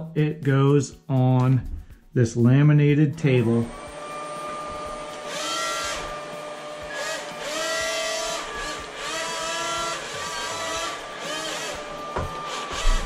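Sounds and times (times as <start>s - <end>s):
toy hovercraft motor whine: 3.7s - 13.0s.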